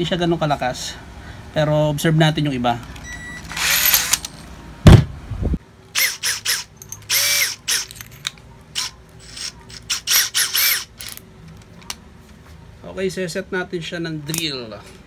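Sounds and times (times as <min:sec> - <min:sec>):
cordless drill whirring: 0:03.1 - 0:04.2, 0:06.0 - 0:08.0, 0:08.8 - 0:11.2
thump: 0:04.8 - 0:05.2.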